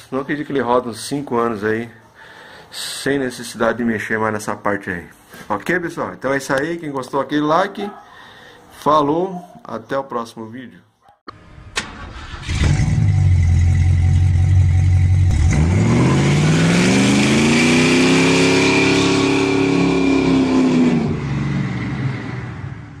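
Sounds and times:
car engine revving: 0:11.4 - 0:23.0.

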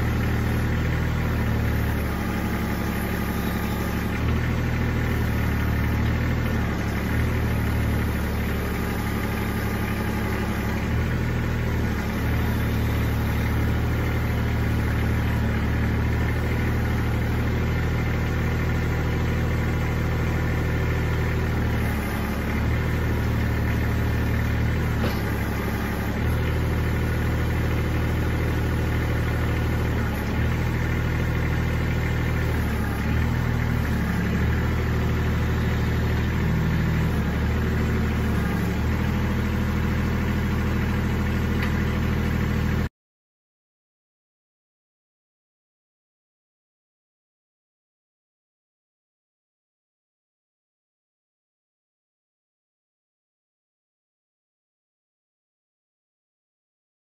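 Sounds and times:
tractor diesel engine running: 0:00.0 - 0:42.9.

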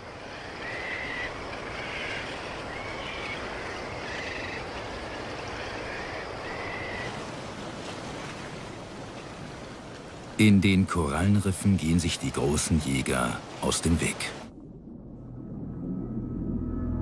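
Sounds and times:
sea waves: 0:00.0 - 0:15.8
wind: 0:00.0 - 0:17.0
birds calling: 0:00.2 - 0:07.2.

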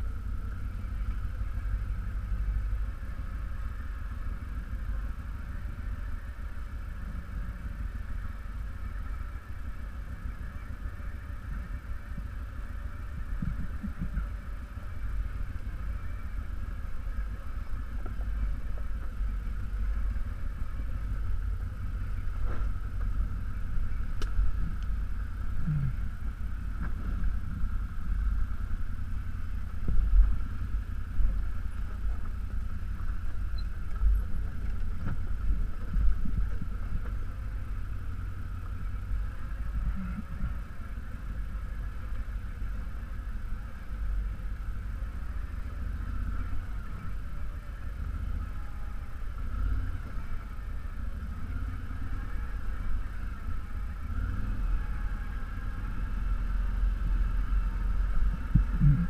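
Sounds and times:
atv engine rumbling: 0:00.0 - 0:59.0
short thumps: 0:58.5 - 0:59.0.

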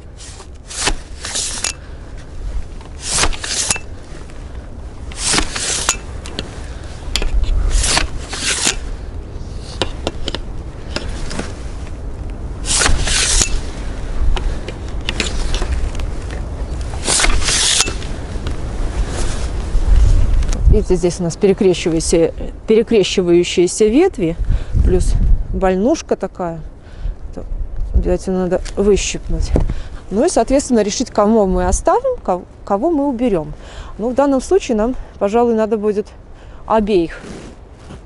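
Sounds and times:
twigs rustling: 0:00.0 - 0:20.7
pole pruner snipping branches: 0:00.2 - 0:01.9, 0:02.8 - 0:04.0, 0:05.1 - 0:06.5, 0:07.1 - 0:11.5, 0:12.6 - 0:15.8, 0:16.8 - 0:18.2.

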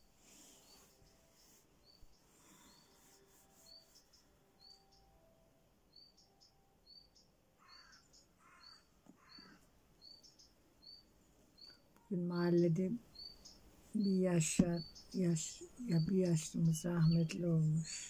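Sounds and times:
high bird chirps: 0:12.4 - 0:18.0.

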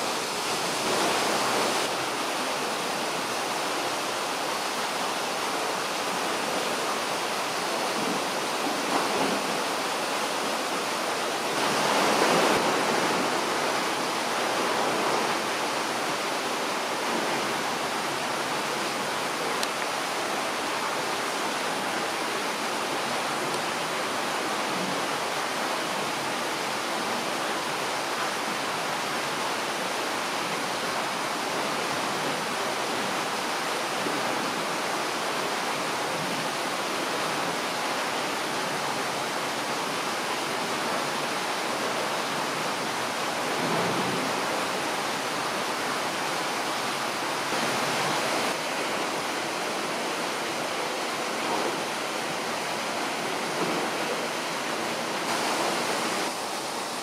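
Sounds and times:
steady rushing noise: 0:42.6 - 0:57.0.

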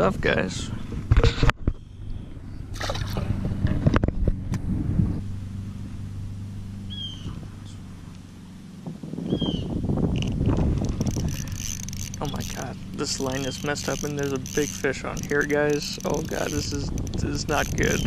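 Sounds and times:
low hum: 0:00.5 - 0:18.0
fish splashing into water: 0:02.7 - 0:03.3
fishing reel winding: 0:10.2 - 0:18.0.

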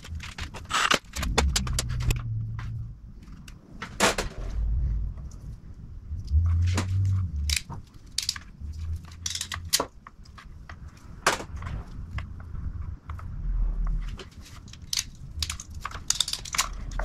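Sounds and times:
wire crimper clicking and snapping: 0:00.0 - 0:02.2, 0:07.0 - 0:10.4, 0:14.5 - 0:17.0.

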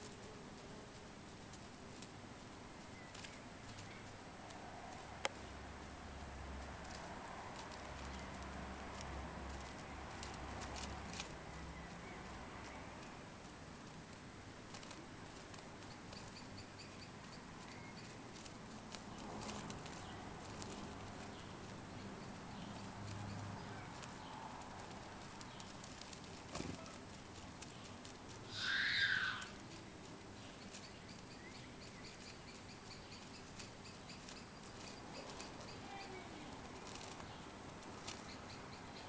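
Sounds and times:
faint outdoor background: 0:00.0 - 0:39.0
soft ticks and taps: 0:00.9 - 0:28.5
short bird call: 0:28.5 - 0:29.6.

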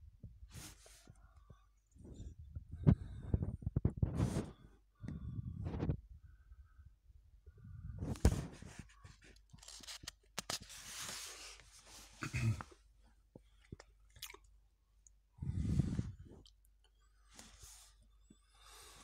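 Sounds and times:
paper pages rustling: 0:08.1 - 0:11.8.

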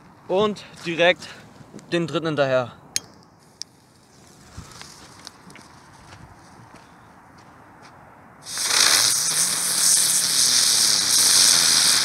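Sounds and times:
ground spinner firework hissing: 0:08.4 - 0:12.0.

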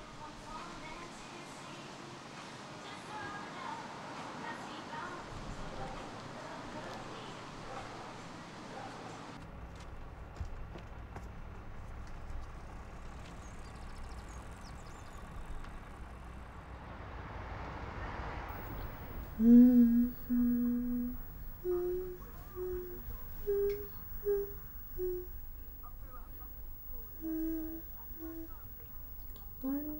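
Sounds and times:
low background rumble: 0:18.5 - 0:29.9
person humming slow tune: 0:18.5 - 0:29.9.

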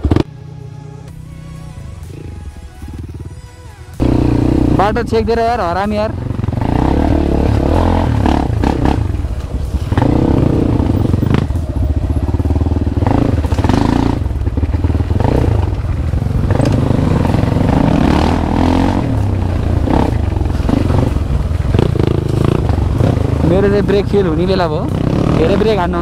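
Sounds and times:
dirt bike engine running: 0:00.0 - 0:26.0
knocks and clatter from bike: 0:10.9 - 0:17.8.

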